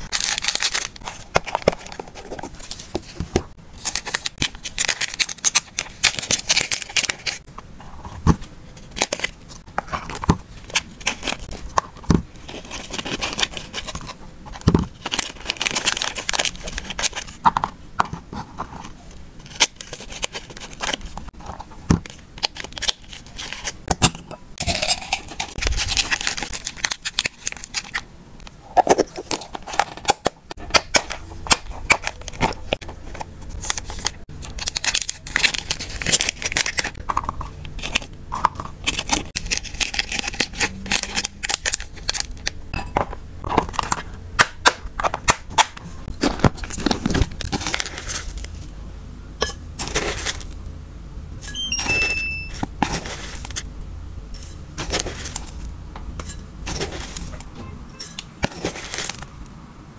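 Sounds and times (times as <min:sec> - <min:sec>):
plastic bags crinkling: 0:00.0 - 0:03.2.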